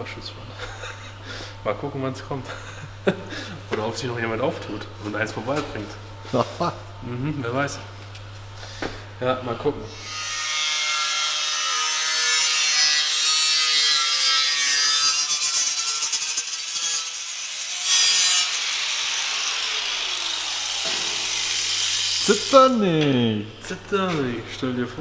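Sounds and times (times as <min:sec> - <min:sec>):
power tool grinding sheet metal: 0:10.0 - 0:22.8.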